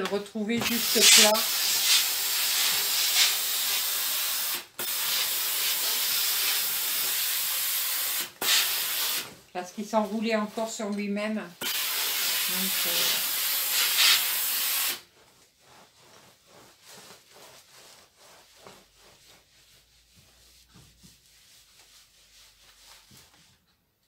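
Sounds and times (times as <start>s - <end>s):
iron rubbing over towel: 0.4s - 23.7s
steam iron hissing: 0.7s - 9.3s, 11.6s - 15.0s.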